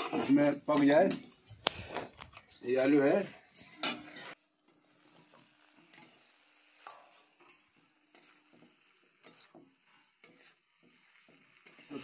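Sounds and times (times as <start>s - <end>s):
spatula tapping and scraping steel: 5.1s - 12.0s.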